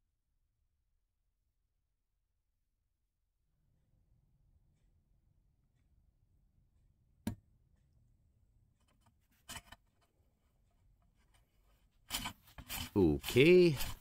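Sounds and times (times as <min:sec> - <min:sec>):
metal-on-metal scraping: 0:08.9 - 0:10.1, 0:11.2 - 0:14.0.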